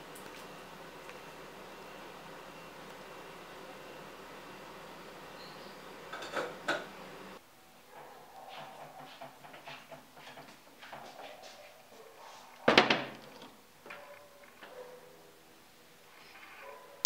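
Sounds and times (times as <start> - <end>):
faint handling sounds: 16.0 - 17.0.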